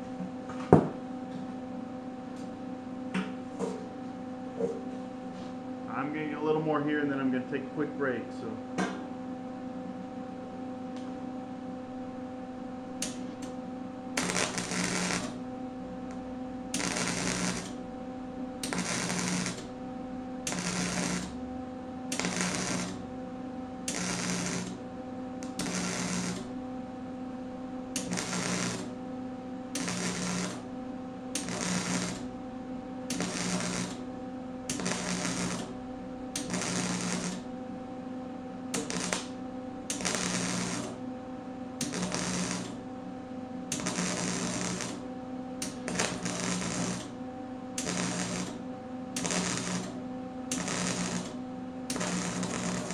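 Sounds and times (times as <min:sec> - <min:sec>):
steady hum: 0:00.0 - 0:52.9
welding arc: 0:13.0 - 0:13.5, 0:14.2 - 0:15.4, 0:16.1 - 0:17.8, 0:18.6 - 0:19.7, 0:20.4 - 0:21.4, 0:22.1 - 0:23.0, 0:23.8 - 0:24.8, 0:25.4 - 0:26.5, 0:28.0 - 0:29.0, 0:29.8 - 0:30.7, 0:31.3 - 0:32.3, 0:33.1 - 0:34.1, 0:34.7 - 0:35.8, 0:36.4 - 0:37.5, 0:38.7 - 0:41.0, 0:41.8 - 0:42.8, 0:43.7 - 0:45.0, 0:45.6 - 0:47.1, 0:47.8 - 0:48.6, 0:49.2 - 0:52.9.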